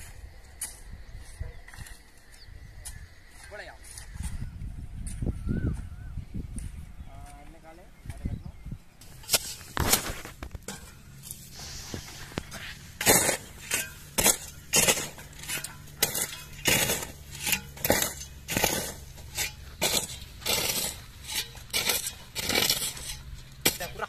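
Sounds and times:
clinking scraping strikes: 9.0 - 24.0.

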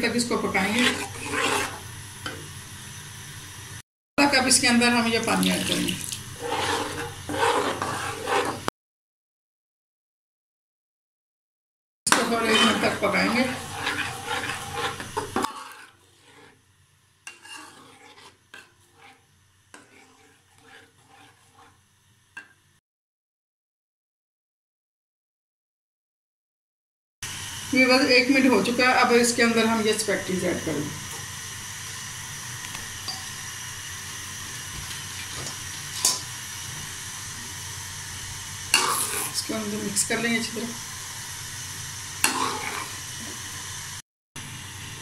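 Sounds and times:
sauce simmering with hiss: 0.3 - 3.8, 5.2 - 8.7, 12.1 - 22.6, 27.3 - 45.0
metal spoon scraping sauce in pan: 0.6 - 1.8, 6.4 - 8.7, 12.1 - 16.6, 17.3 - 21.8, 38.7 - 39.4, 42.2 - 43.0.

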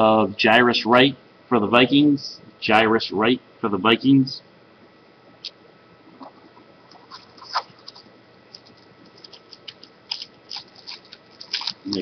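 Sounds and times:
foil card pack crinkling: 6.9 - 12.0.

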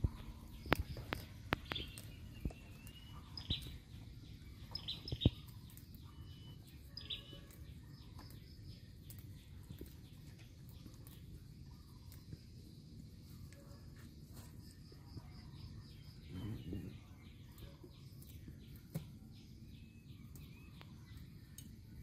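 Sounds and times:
bird chirps: 0.0 - 12.6, 14.6 - 21.9
sharp clicks and snaps of picking greens: 0.5 - 3.8, 20.2 - 21.9.

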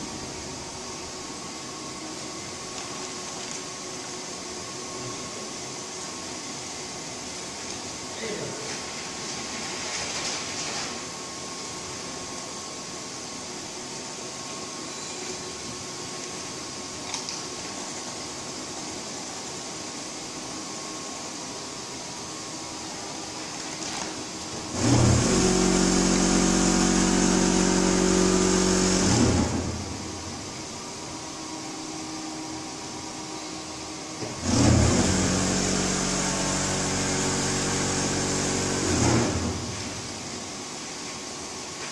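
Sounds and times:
auger motor whine: 24.6 - 30.4, 31.8 - 40.1.

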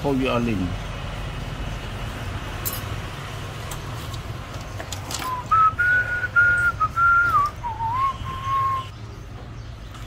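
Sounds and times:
person whistling a tune: 5.3 - 8.9.

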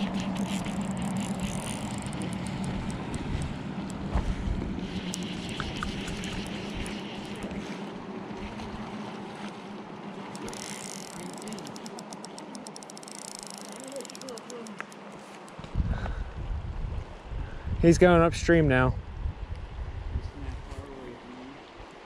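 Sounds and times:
river rushing: 0.0 - 15.6
wind buffeting microphone: 15.6 - 21.0.

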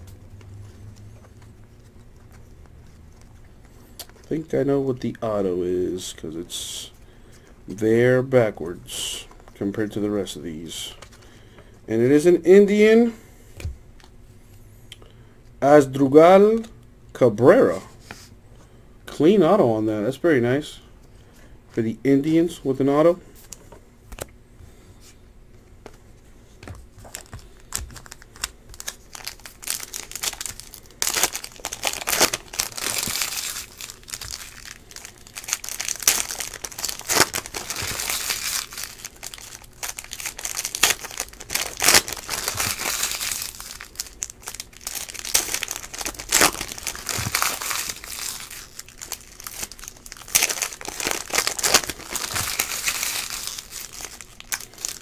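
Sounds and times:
plastic wrappers crinkling: 27.0 - 55.0.

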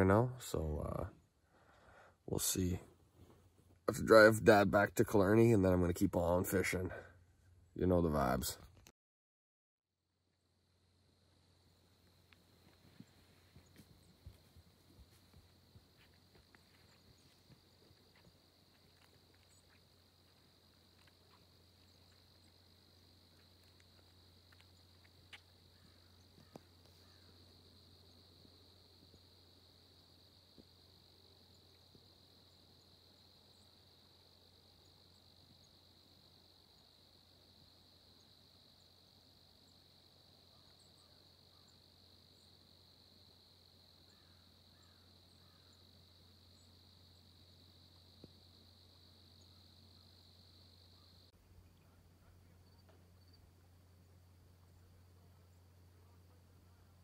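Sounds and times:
crickets trilling: 10.4 - 57.0
faint chirps: 11.2 - 57.0
faint ticks: 12.0 - 29.3.

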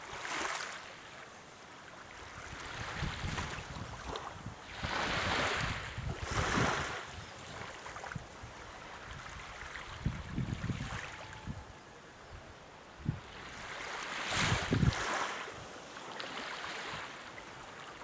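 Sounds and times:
small waves lapping under a pier: 0.0 - 11.8, 12.5 - 18.0
wind rumbling on microphone: 2.2 - 15.8.

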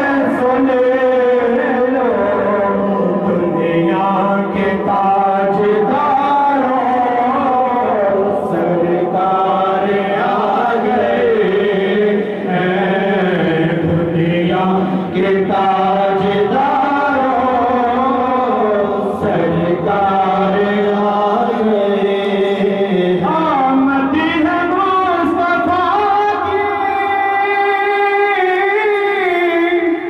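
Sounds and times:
men chanting a devotional hymn: 0.0 - 30.0.

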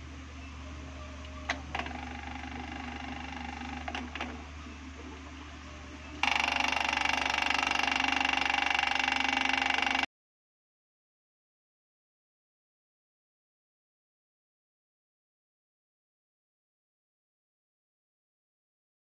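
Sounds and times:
steady low hum: 0.0 - 10.1
rapid rattling buzz: 1.5 - 4.6, 6.2 - 10.1.

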